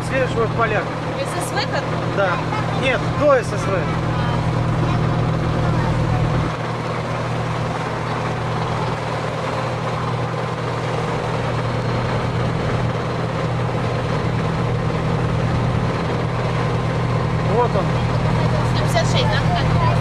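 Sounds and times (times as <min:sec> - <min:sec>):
boat engine droning: 0:00.0 - 0:20.0.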